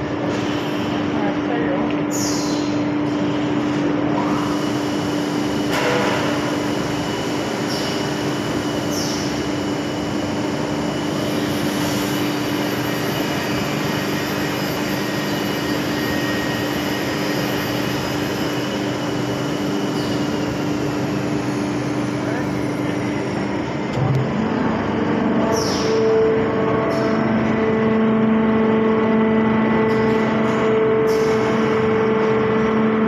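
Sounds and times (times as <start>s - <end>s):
mill machinery hum and rush: 0.0s - 33.0s.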